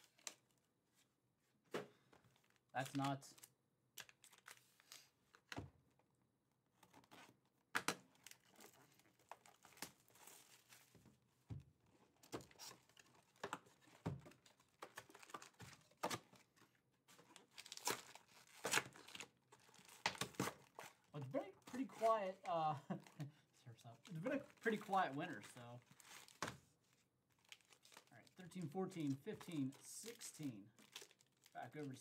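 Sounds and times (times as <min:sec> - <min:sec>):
plastic wrap crinkling: 0:02.3 - 0:05.5, 0:08.1 - 0:11.0, 0:11.9 - 0:32.0
foil packs rustling: 0:12.0 - 0:28.3, 0:29.0 - 0:32.0.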